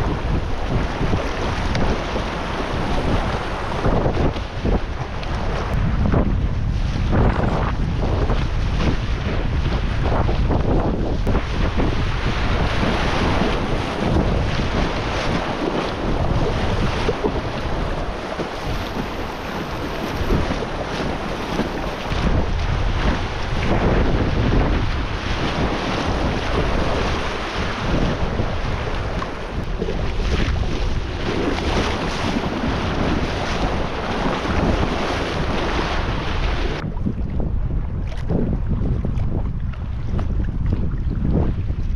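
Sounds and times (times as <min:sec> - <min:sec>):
river water rushing and splashing: 0:00.0 - 0:06.2, 0:07.0 - 0:36.9
dull rumble: 0:00.0 - 0:41.9
wind buffeting microphone: 0:00.0 - 0:41.9
paddle blades dipping into water: 0:11.2 - 0:37.2.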